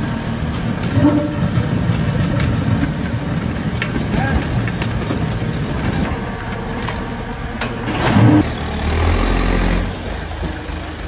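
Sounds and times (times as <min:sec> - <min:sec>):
scraping clatter: 0:00.0 - 0:08.6
diesel engine running: 0:00.0 - 0:11.0.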